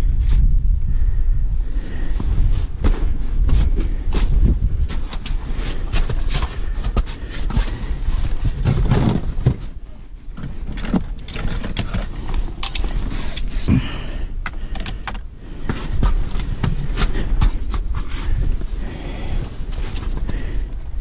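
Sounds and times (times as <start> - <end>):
wind rumbling on microphone: 0.0 - 21.0
gear rattling in plastic sled: 5.0 - 9.8, 10.4 - 13.7.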